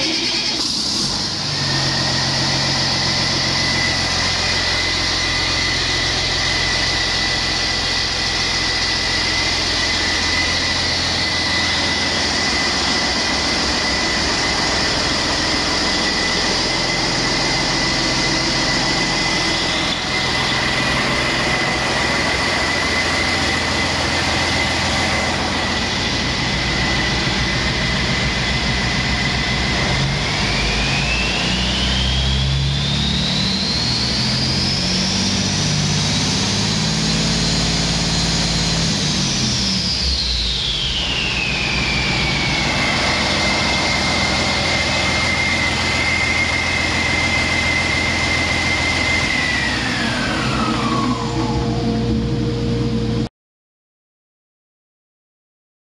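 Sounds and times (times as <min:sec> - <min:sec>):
diesel engine idling: 0:00.0 - 0:32.6
turbocharger whine: 0:00.0 - 0:53.3.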